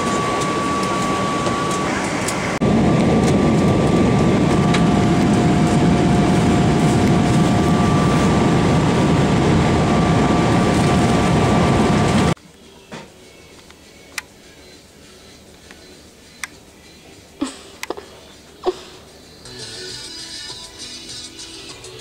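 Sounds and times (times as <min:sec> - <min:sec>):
jet engine and airflow rush: 0:00.0 - 0:12.4.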